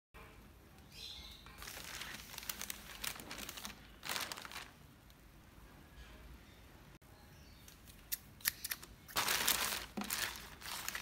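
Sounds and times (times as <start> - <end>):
plastic bag crinkling: 1.6 - 4.8, 9.1 - 11.0.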